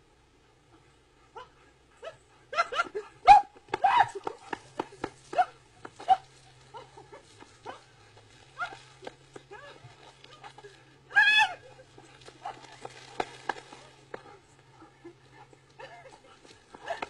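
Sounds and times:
dog barking and yapping: 1.4 - 8.0, 8.6 - 8.9.

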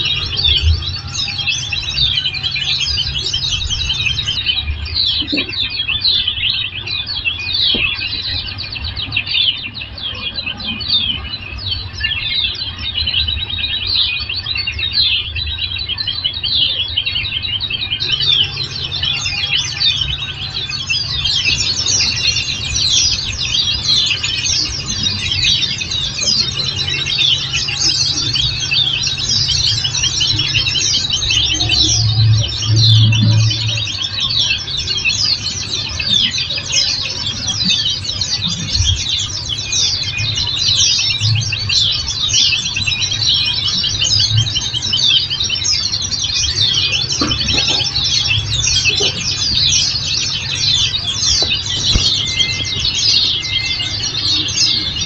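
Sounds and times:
birds chirping and twittering: 0.0 - 55.0
steady low hum: 14.8 - 55.0.

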